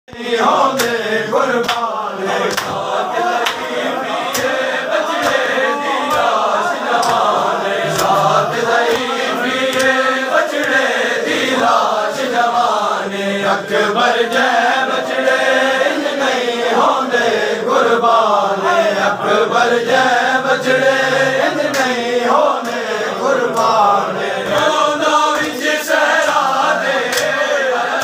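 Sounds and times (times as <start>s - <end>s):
men chanting: 0.1s - 28.0s
hands slapping bare chests: 0.7s - 1.0s, 1.6s - 8.2s, 8.8s - 10.9s, 21.7s - 22.0s, 24.4s - 27.4s.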